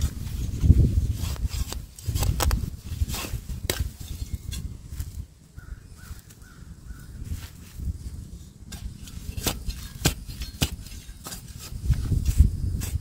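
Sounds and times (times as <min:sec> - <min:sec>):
earth rustling: 0:00.0 - 0:13.0
weed stems crackling and snapping: 0:01.4 - 0:02.7.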